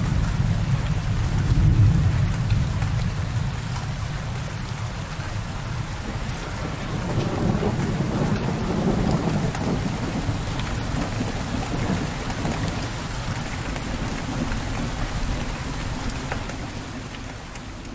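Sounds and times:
heavy rain pouring: 0.0s - 17.9s.

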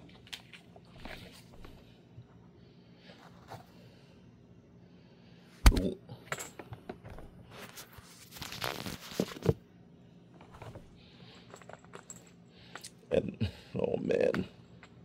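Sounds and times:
cardboard packaging rustling and tearing: 8.1s - 9.6s.

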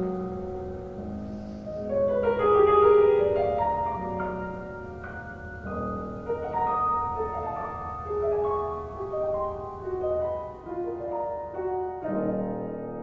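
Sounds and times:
slow piano melody: 0.0s - 13.0s.

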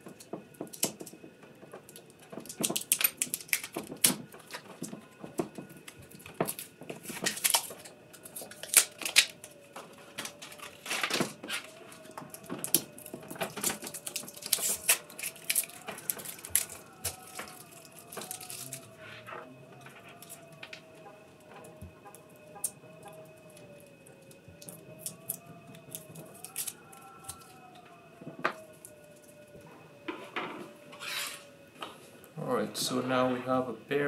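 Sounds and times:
tape and wrapping crinkling and tearing: 1.9s - 20.8s, 24.2s - 29.4s.

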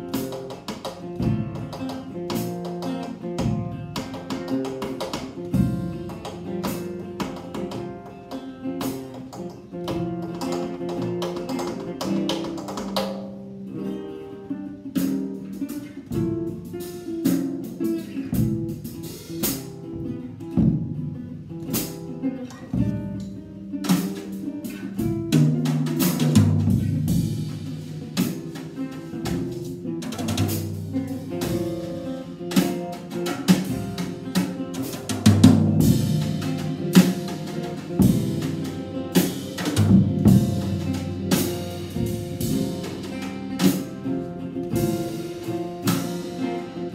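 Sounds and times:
acoustic guitar: 0.0s - 46.9s
drum kit hits: 22.7s - 46.9s.

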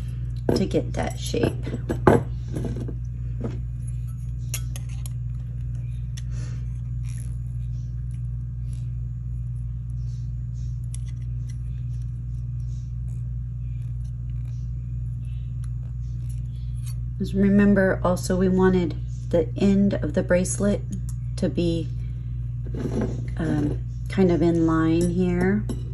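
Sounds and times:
steady low hum: 0.0s - 25.9s
pliers clicking and scraping metal: 10.9s - 11.6s.

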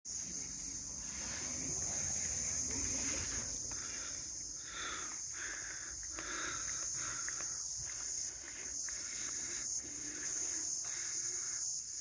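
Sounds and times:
insects droning: 0.0s - 12.0s
low rumble: 0.1s - 4.6s.

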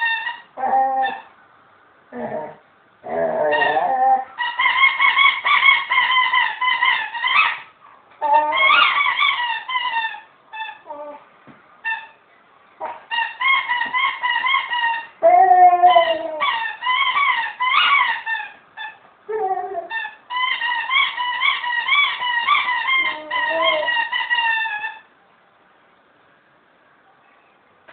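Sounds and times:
dog chewing squeaky toy: 0.0s - 1.3s, 3.2s - 11.2s, 11.8s - 12.2s, 12.8s - 19.0s, 19.8s - 25.1s.

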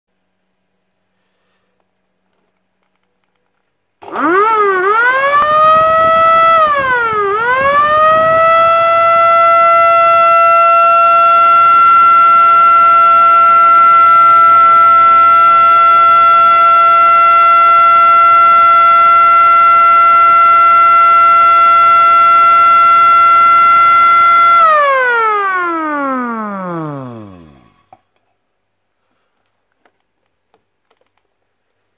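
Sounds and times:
electric siren wailing: 4.0s - 27.9s.

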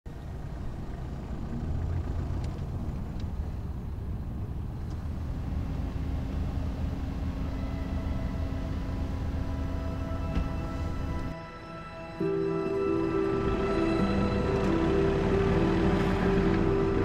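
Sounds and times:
vehicle driving rumble: 0.1s - 11.4s, 12.2s - 17.0s
held music tones: 6.9s - 17.0s.

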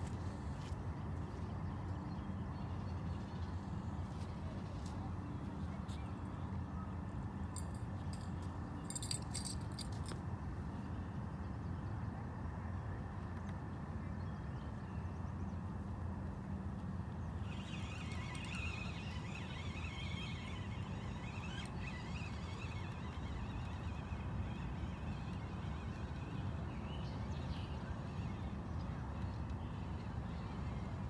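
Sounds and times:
birds chirping and trilling: 17.3s - 28.4s
fishing reel clicking: 17.5s - 26.2s.

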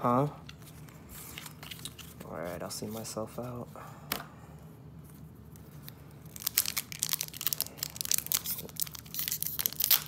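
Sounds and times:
foil wrapper crinkling: 6.2s - 10.0s.

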